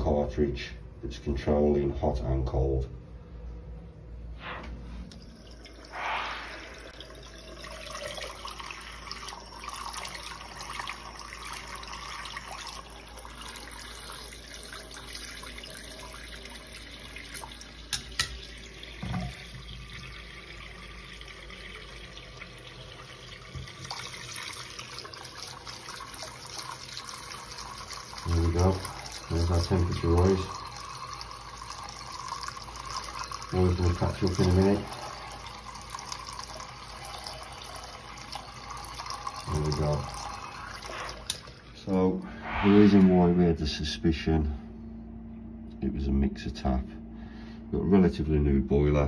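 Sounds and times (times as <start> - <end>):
tap water running into sink: 6.6 - 41.7.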